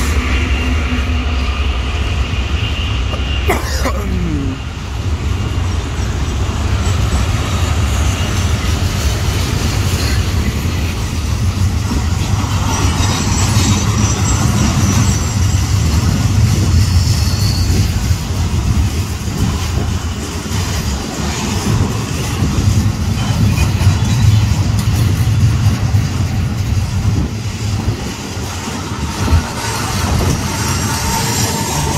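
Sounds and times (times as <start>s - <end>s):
freight train wheels rumbling on rail: 0.0s - 31.9s.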